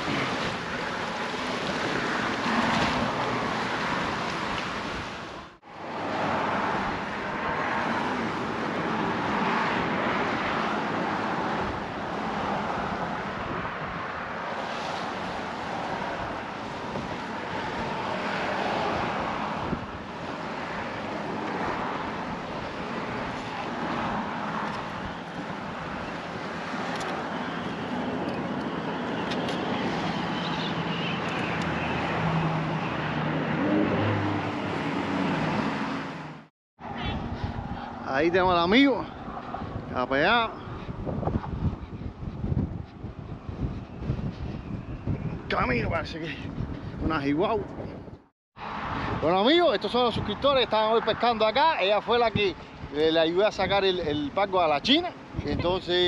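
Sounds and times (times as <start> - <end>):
vehicle engine hum: 0.0 - 39.9
traffic rushing: 0.0 - 56.0
wind: 0.0 - 56.0.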